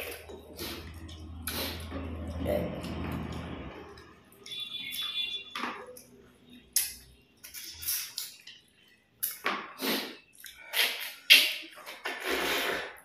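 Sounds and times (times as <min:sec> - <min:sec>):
wet mouth noises chewing: 0:00.0 - 0:05.2.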